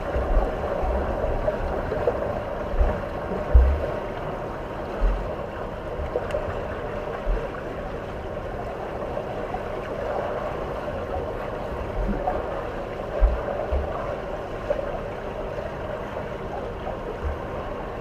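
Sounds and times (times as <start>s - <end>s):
steady rushing noise: 0.0s - 7.9s
dull low thumps: 2.7s - 3.9s, 5.0s - 5.4s, 13.2s - 13.9s.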